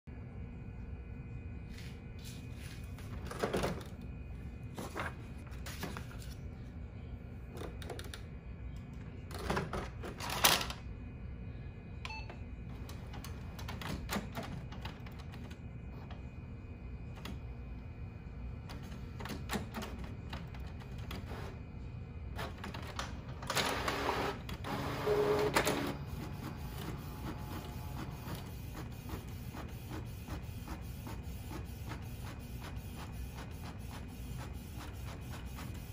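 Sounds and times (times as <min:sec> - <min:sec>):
steady low hum: 0:00.1 - 0:35.9
printer mechanical whirring: 0:12.0 - 0:35.9.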